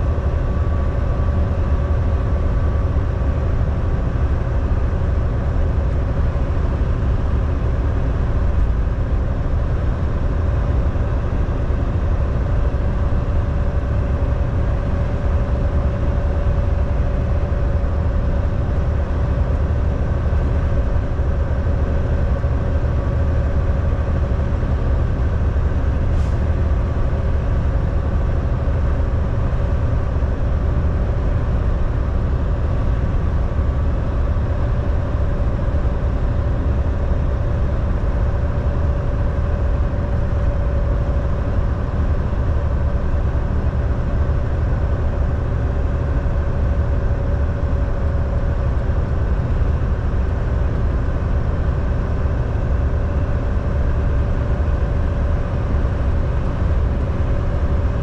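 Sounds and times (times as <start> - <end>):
faint steady whine: 0.0 - 58.0
truck diesel engine and road drone: 0.0 - 58.0.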